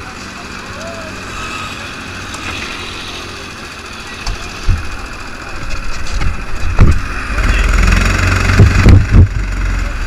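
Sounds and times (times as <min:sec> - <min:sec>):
kart engine chugging: 0:00.0 - 0:10.0
low thumps: 0:08.4 - 0:09.4.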